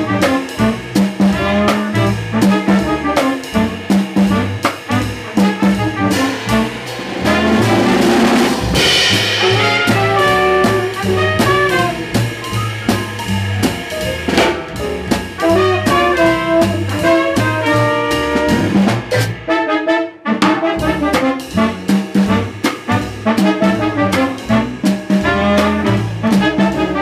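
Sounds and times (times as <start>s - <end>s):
walking double bass: 0.0s - 19.4s, 20.8s - 27.0s
drum kit with ride cymbal: 0.0s - 19.5s, 20.4s - 27.0s
piano: 0.0s - 27.0s
trumpet: 0.0s - 27.0s
tenor saxophone: 8.8s - 12.2s, 15.4s - 18.8s.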